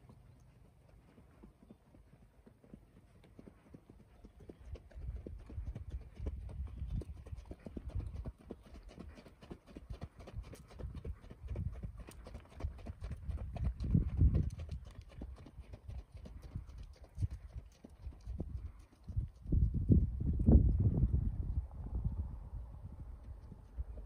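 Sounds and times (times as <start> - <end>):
horse hooves galloping: 0.0 - 20.8, 23.1 - 24.0.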